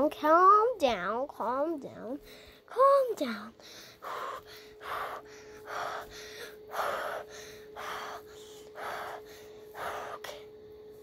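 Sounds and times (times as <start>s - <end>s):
faint steady hum: 0.0s - 11.0s
heavy breathing: 2.2s - 2.7s, 3.5s - 10.6s.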